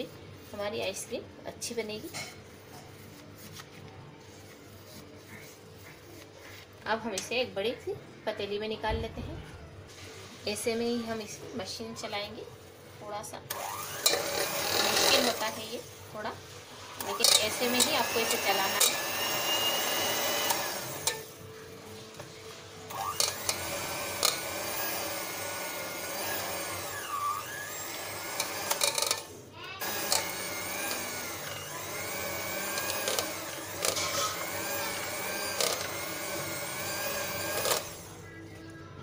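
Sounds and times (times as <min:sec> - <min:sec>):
electric hand mixer whining: 0:13.5 - 0:15.9, 0:17.0 - 0:21.4, 0:22.9 - 0:38.2.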